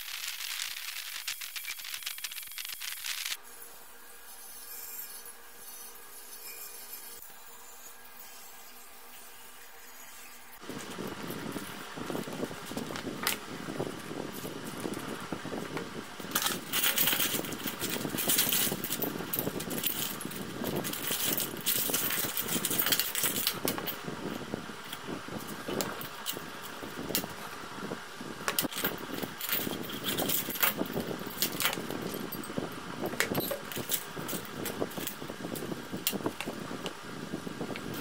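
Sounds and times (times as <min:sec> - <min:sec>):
brush scrubbing metal parts: 0:14.0 - 0:24.0
metal parts clinking in basin: 0:16.2 - 0:24.0, 0:28.5 - 0:36.5.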